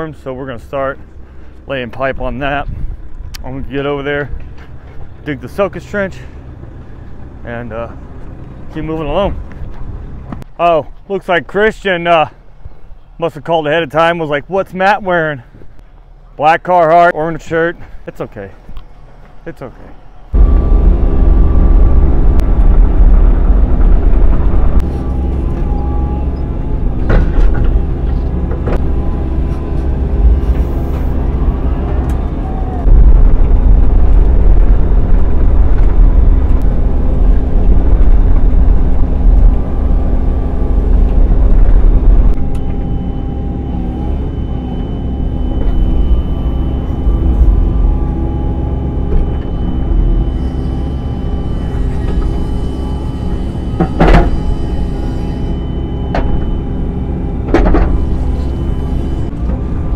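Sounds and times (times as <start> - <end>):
excavator engine and hydraulics: 17.2 - 59.9
thin high whine: 42.3 - 59.3
sharp clunks: 57.5 - 58.1.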